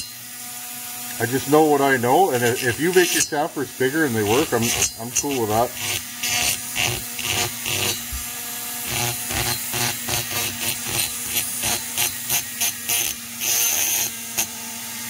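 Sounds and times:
grinding strokes on metal: 0.0 - 15.0
rotary grinding tool humming: 0.0 - 15.0.

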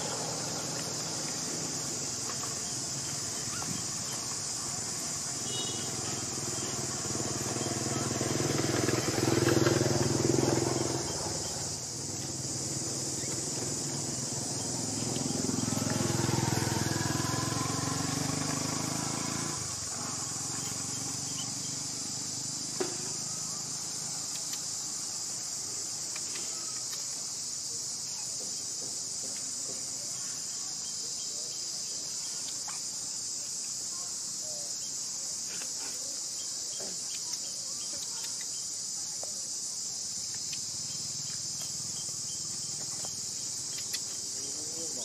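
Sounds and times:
insect chorus drone: 0.0 - 45.0
faint ticks: 24.2 - 24.7, 42.8 - 44.2.

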